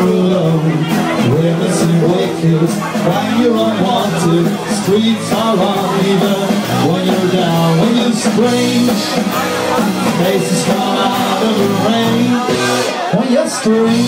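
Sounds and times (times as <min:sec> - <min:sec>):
bass guitar: 0:00.0 - 0:14.0
drums: 0:00.0 - 0:14.0
electric guitar: 0:00.0 - 0:14.0
man singing into a microphone: 0:00.0 - 0:14.0.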